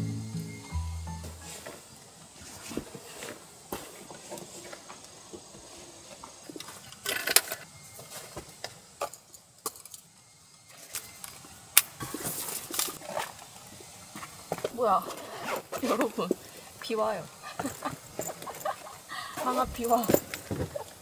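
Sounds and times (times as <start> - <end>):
rustling of fabric and bags: 14.6 - 16.7, 19.3 - 21.0.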